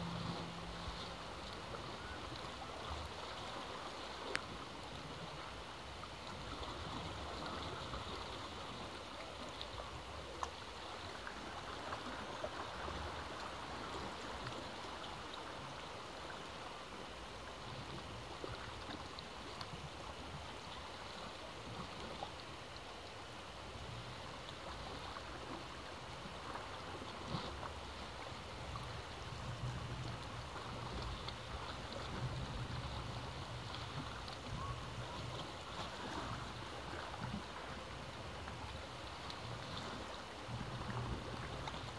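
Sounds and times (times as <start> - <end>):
low rumble: 0.0 - 2.0.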